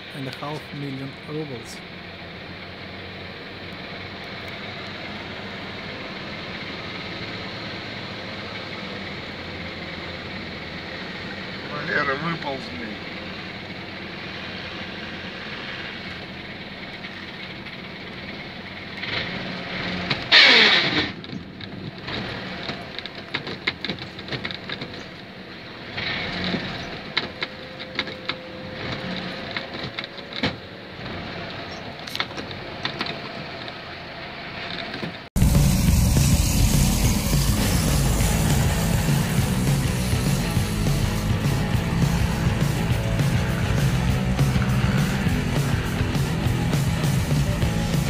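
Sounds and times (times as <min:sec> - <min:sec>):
van engine running under load: 0:00.0 - 0:48.0
rush of noise with falling tone: 0:35.4 - 0:48.0.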